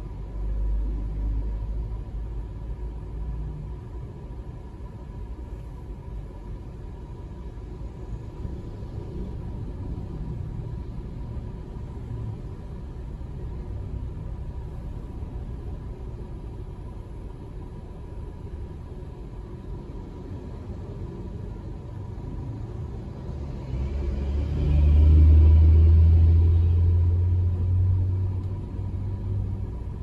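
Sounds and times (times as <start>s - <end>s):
car idling rumble inside cabin: 0.0s - 24.4s, 25.2s - 30.0s.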